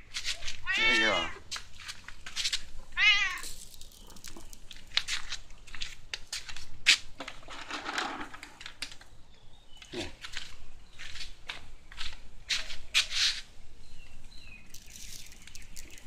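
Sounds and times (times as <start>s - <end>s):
crinkling and crackling clicks: 3.4s - 6.3s, 7.2s - 9.1s, 14.7s - 16.0s.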